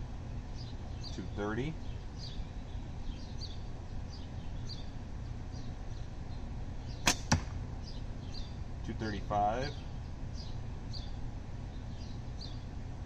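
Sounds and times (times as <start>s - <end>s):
slingshot shot crack: 7.0s - 7.6s.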